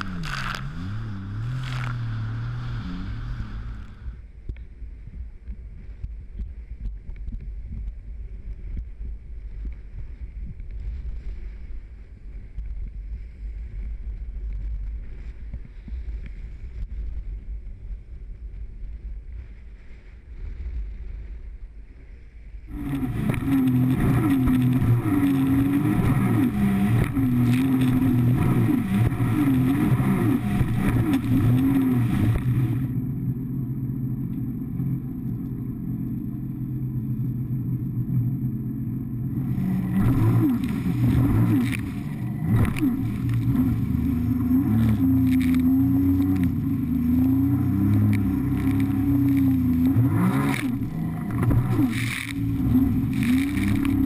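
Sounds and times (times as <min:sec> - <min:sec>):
rushing water: 0:00.0 - 0:04.2, 0:22.7 - 0:33.0, 0:39.3 - 0:54.0
watercraft engine running hard: 0:00.0 - 0:54.0
spray splashing against hull: 0:22.7 - 0:33.0, 0:39.4 - 0:54.0.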